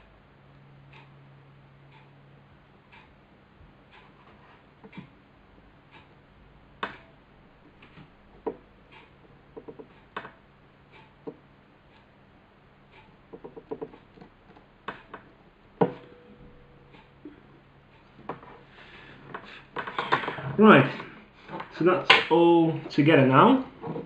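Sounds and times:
faint ticking: 0.0s - 24.0s
low steady hum: 0.0s - 24.0s
light clicks and taps: 6.8s - 12.1s, 12.9s - 16.2s.

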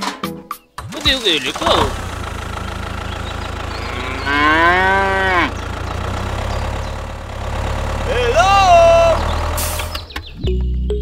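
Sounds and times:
low engine hum: 0.8s - 10.8s
cow mooing: 3.6s - 6.6s.

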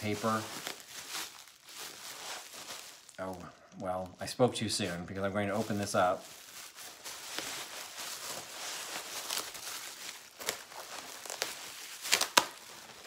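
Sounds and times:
bubble wrap snapping: 0.0s - 4.1s, 4.9s - 13.0s
bubble wrap crinkling: 0.0s - 13.0s.

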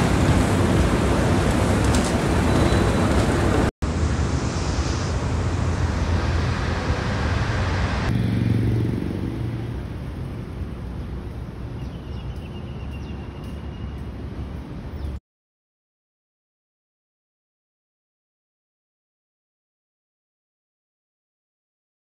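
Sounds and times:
road traffic rumble and hiss: 0.0s - 15.2s.

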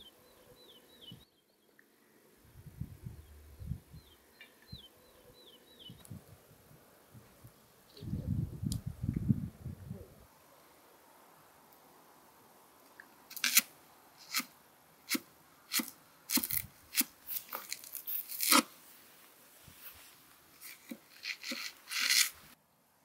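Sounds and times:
knife slicing onion: 13.3s - 14.5s, 15.1s - 18.7s, 20.7s - 22.4s.

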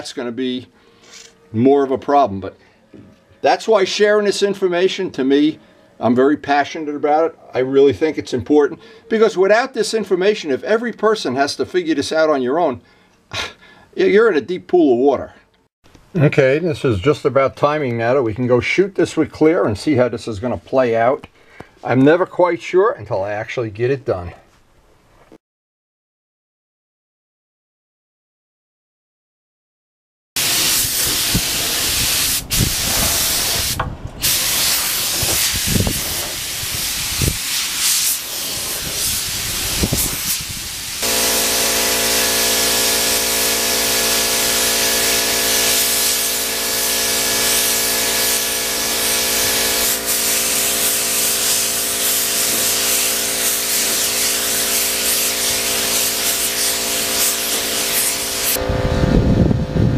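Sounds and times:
spray gun hissing: 30.4s - 58.6s
mechanical hum: 41.0s - 52.7s, 54.7s - 59.9s.

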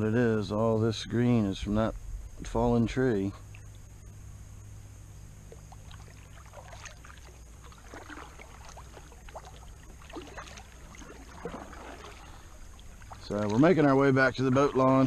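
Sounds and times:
low steady hum: 0.0s - 15.0s
paddle splashing in water: 5.6s - 15.0s.

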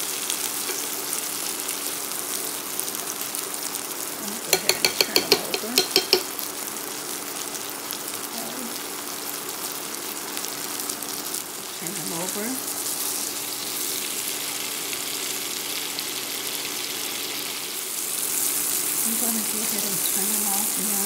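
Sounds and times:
asparagus sizzling in butter: 0.0s - 21.0s
metal fork clicking against pan: 4.5s - 6.3s.

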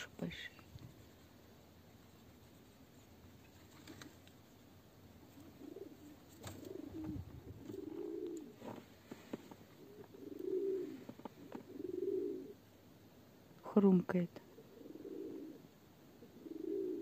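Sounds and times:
pigeons cooing: 3.4s - 12.6s, 14.5s - 17.0s.

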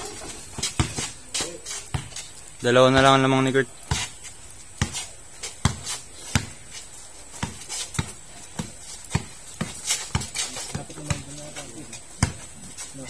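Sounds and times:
basketball bouncing: 0.0s - 2.2s, 4.8s - 5.0s, 5.6s - 6.7s, 7.3s - 12.7s.

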